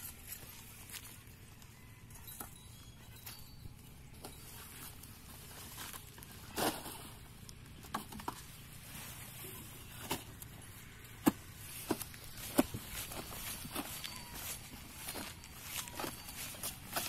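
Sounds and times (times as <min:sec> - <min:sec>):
plastic pipe rustling and scraping: 0:04.2 - 0:17.0.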